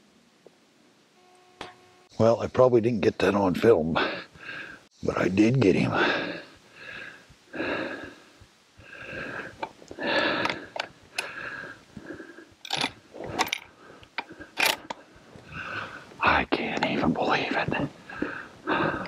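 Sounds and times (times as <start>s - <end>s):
man breathing hard: 4.0s - 4.9s, 6.0s - 14.6s, 15.4s - 16.2s, 18.0s - 19.0s.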